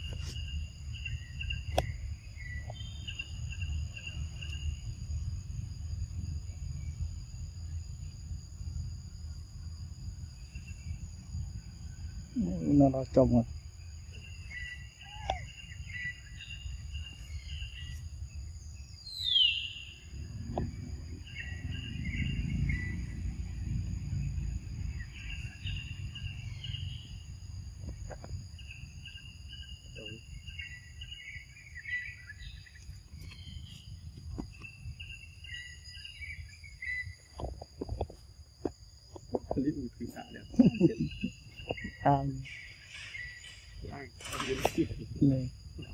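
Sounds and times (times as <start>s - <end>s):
birds chirping: 0.0s - 5.5s, 10.2s - 37.5s, 38.8s - 45.9s
low rumble: 20.0s - 28.5s.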